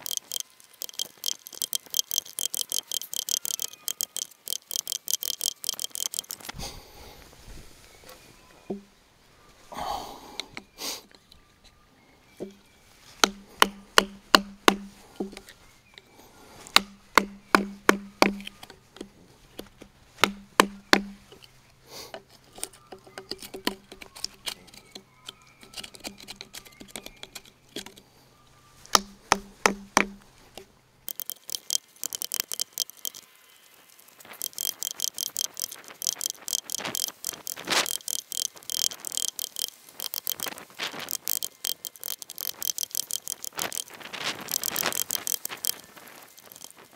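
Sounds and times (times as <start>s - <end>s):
chisel knocking into wood: 13.2s - 15.4s, 16.7s - 18.6s, 20.2s - 21.2s, 28.9s - 30.2s
chisel scraping wood chips: 22.1s - 28.1s, 28.9s - 33.2s, 34.4s - 46.9s.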